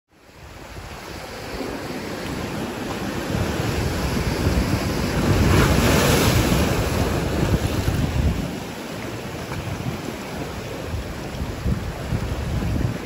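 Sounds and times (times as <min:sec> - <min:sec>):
surf washing over rocks: 0:00.2 - 0:13.0
wind buffeting microphone: 0:00.3 - 0:13.0.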